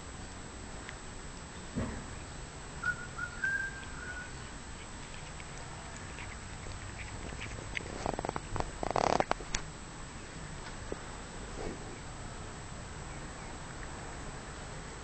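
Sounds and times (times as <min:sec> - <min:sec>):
thin whistle-like tone: 0:02.8 - 0:04.4
pet crunching grass: 0:03.4 - 0:09.8.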